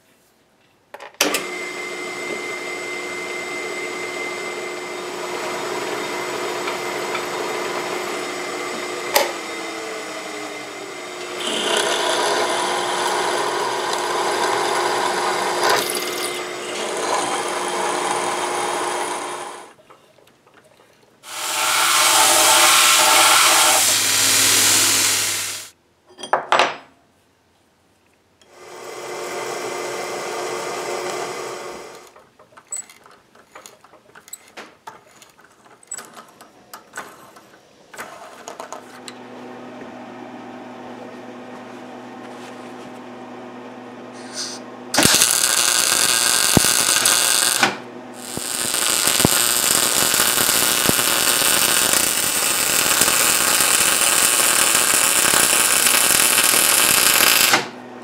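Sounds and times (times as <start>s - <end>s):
drill press motor hum: 1.2s - 19.8s, 21.3s - 25.7s, 28.5s - 32.2s, 44.1s - 58.0s
drill boring into steel: 1.4s - 19.8s, 21.2s - 25.7s, 28.5s - 32.9s, 44.2s - 57.8s.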